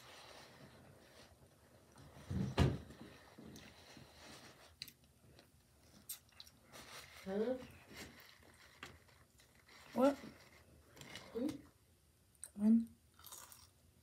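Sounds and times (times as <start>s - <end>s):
person chewing food: 13.1s - 13.8s.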